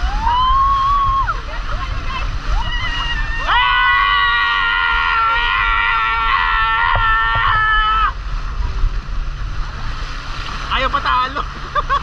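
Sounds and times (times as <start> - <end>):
people screaming: 0.0 - 1.4, 2.5 - 8.2.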